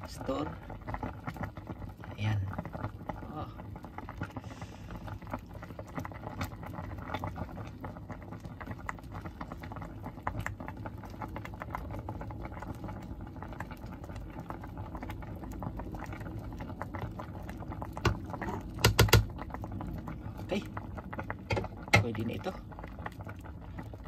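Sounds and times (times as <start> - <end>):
pot of broth bubbling: 0.0 - 24.0
loud knock: 18.8 - 19.2.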